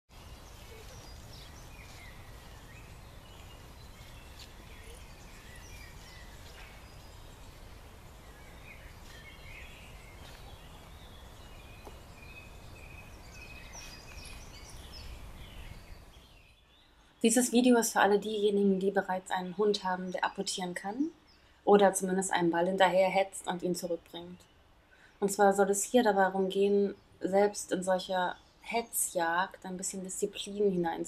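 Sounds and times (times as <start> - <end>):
birds chirping and singing: 0.2 - 16.9.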